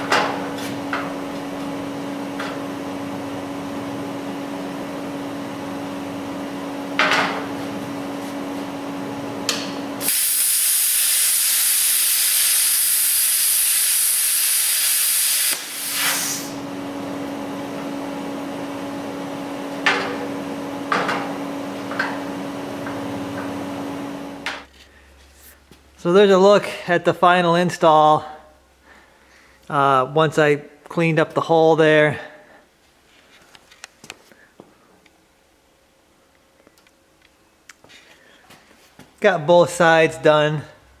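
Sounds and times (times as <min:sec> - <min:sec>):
plasma cutter hissing: 0:10.0 - 0:16.6
steady hum: 0:15.2 - 0:26.2
puff of air: 0:15.5 - 0:16.6.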